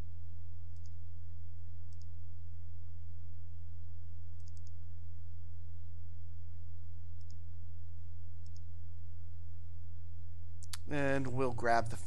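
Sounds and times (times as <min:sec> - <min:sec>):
low electrical hum: 0:00.0 - 0:12.0
computer mouse clicks: 0:00.7 - 0:01.0, 0:01.9 - 0:02.1, 0:04.4 - 0:04.8, 0:07.2 - 0:07.4, 0:08.4 - 0:08.7.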